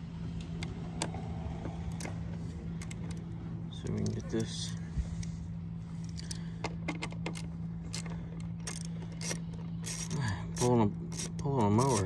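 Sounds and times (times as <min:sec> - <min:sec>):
steady low hum: 0:00.0 - 0:12.0
ratchet wrench clicking: 0:07.2 - 0:12.0.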